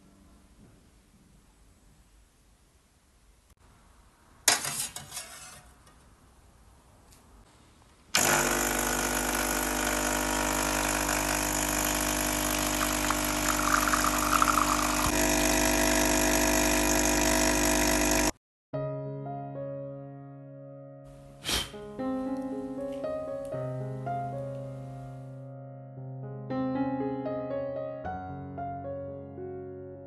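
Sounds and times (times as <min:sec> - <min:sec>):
espresso machine pump humming: 0:08.2 - 0:18.4.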